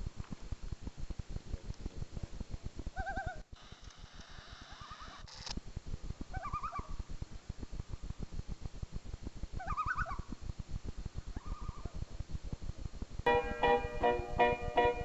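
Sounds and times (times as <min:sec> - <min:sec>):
low irregular rumble: 0:10.2 - 0:15.0.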